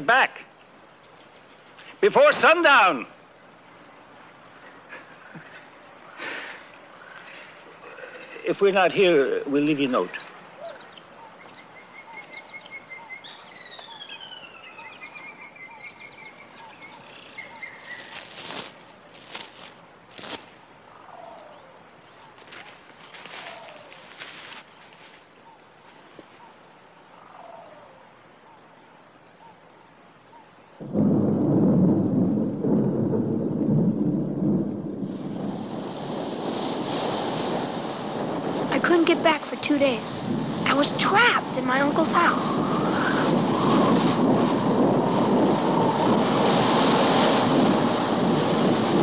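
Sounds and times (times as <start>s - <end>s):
birds chirping: 0.0s - 30.8s
steady hiss: 0.0s - 49.0s
rustling: 17.7s - 20.7s, 22.2s - 26.6s
thunder rumbling: 30.8s - 49.0s.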